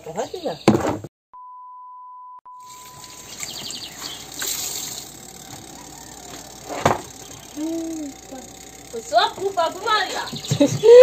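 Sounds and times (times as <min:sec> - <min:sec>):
steady high beep: 0:01.4 - 0:04.0
water running: 0:02.6 - 0:11.0.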